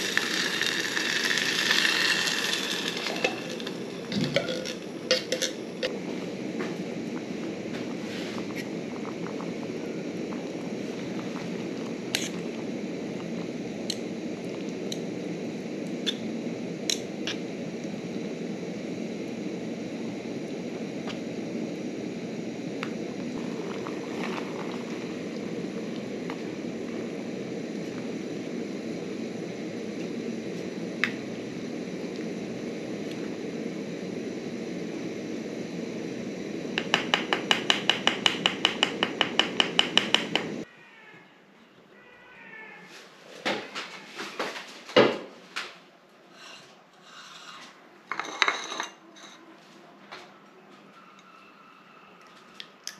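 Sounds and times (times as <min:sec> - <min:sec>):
gas stove flame rushing: 0:00.0 - 0:40.7.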